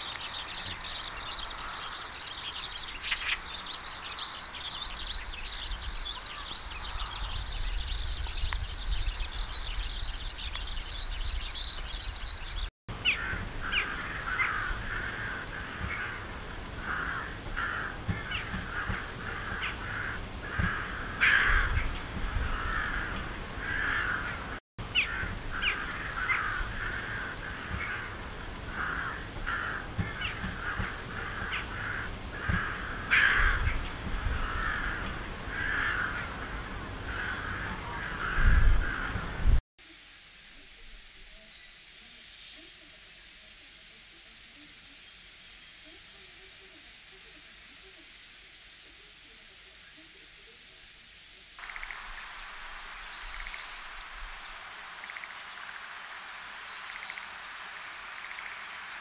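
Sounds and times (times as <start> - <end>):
magpies chattering: 0.0 - 10.6, 13.0 - 39.4
jackdaws calling: 0.0 - 39.6
rooks cawing: 13.0 - 39.6.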